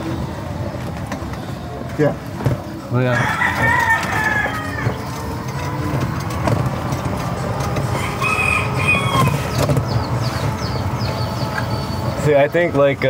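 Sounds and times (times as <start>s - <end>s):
tricycle rumble: 0.0s - 13.0s
rooster crowing: 3.1s - 5.8s, 7.8s - 9.6s.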